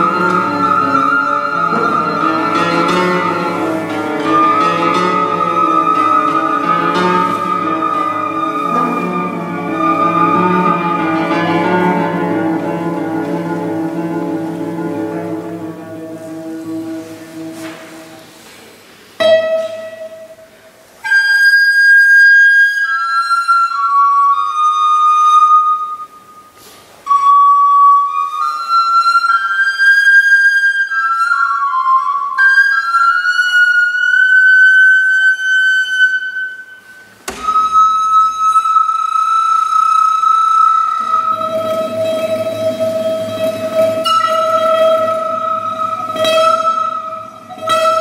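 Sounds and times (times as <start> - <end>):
recorder playing slow melody: 0.0 - 18.1, 30.7 - 48.0.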